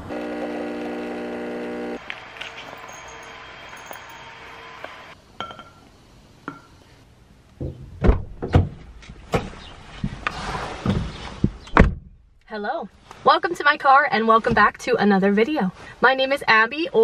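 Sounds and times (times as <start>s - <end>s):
car door and seat thumps: 10.8s - 12.1s.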